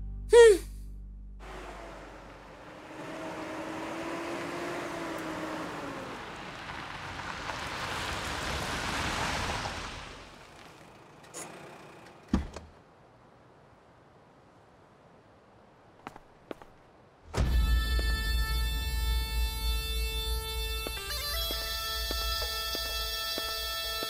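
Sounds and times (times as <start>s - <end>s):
car driving past: 1.4s - 12.3s.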